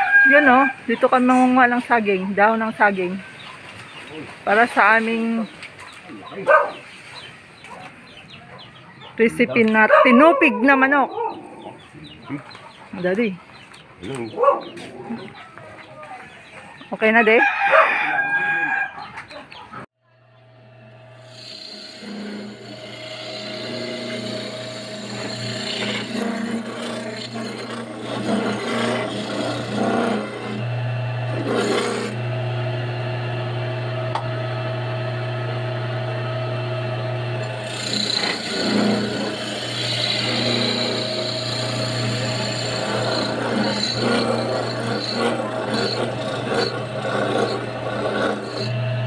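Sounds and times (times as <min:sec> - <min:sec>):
electric motor humming: 0:20.1 - 0:49.0
coconut rasping on grater: 0:21.2 - 0:32.2, 0:37.3 - 0:48.8.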